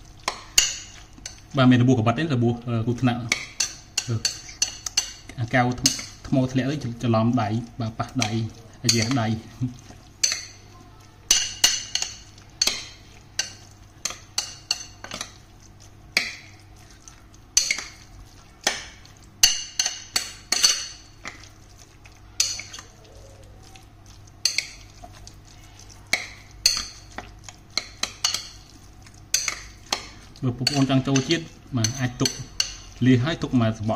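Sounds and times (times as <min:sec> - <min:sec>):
metal spoon stirring in a bowl: 0:00.0 - 0:01.8, 0:02.9 - 0:33.9
spoon clinking against ceramic bowl: 0:03.3 - 0:06.2, 0:08.1 - 0:09.3, 0:10.2 - 0:10.6, 0:11.3 - 0:15.4, 0:17.6 - 0:18.0, 0:18.6 - 0:21.5, 0:22.4 - 0:23.0, 0:24.4 - 0:25.2, 0:26.1 - 0:28.7, 0:29.3 - 0:33.0.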